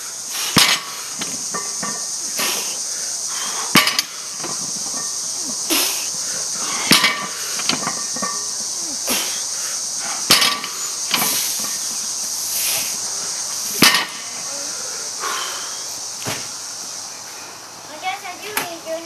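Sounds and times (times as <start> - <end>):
high insect drone: 0.0 - 19.0
barbell plates clanking on mat: 0.6 - 2.7, 3.7 - 5.2, 6.7 - 8.6, 10.3 - 11.8.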